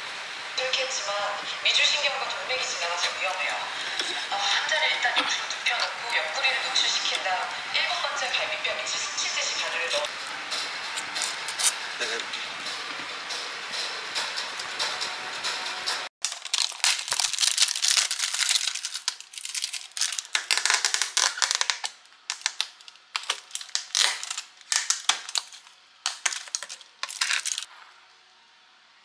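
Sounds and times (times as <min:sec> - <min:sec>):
plastic crackling: 0:16.2 - 0:27.7.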